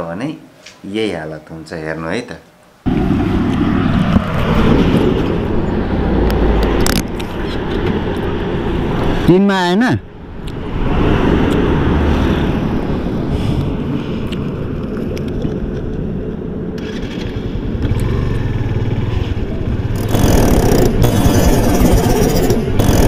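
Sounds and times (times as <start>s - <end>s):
wind rushing over microphone: 2.9s - 23.0s
motorcycle engine running: 16.8s - 23.0s.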